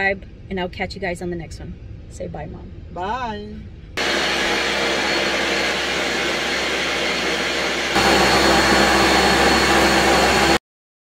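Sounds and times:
blender motor running: 0:04.0 - 0:10.6.

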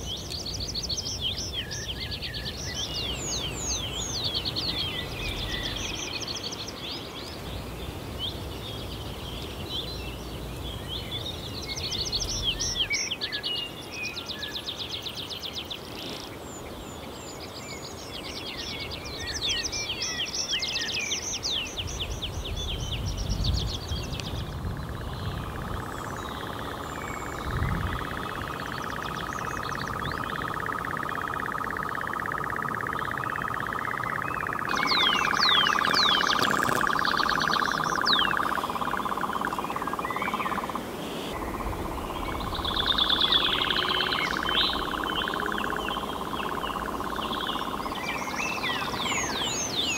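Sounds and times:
songbirds trilling and chirping: 0:00.0 - 0:49.9
nightjar churring: 0:25.4 - 0:40.8, 0:41.4 - 0:49.9.

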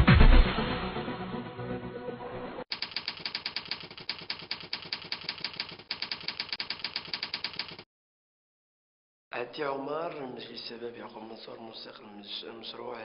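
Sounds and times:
typewriter keys clicking: 0:02.7 - 0:07.8.

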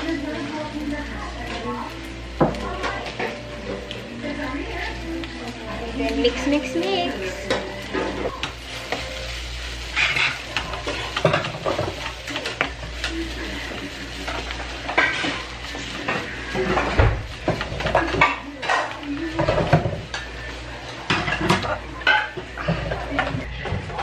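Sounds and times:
light sizzle: 0:00.0 - 0:24.0
wooden spatula scraping frying pan: 0:07.4 - 0:24.0.

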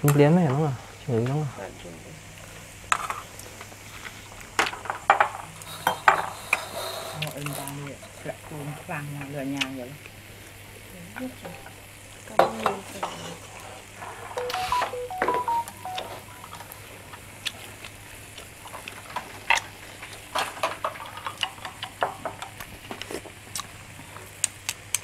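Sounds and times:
meat sizzling on a grill pan: 0:02.2 - 0:14.0
short tones at different pitches: 0:14.4 - 0:16.6.

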